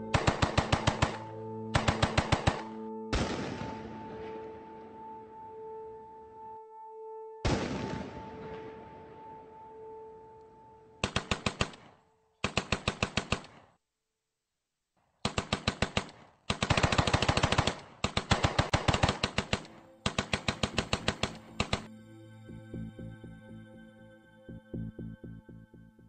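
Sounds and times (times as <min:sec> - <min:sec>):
automatic machine-gun fire: 0:00.1 - 0:03.4, 0:11.0 - 0:13.6, 0:15.2 - 0:21.8.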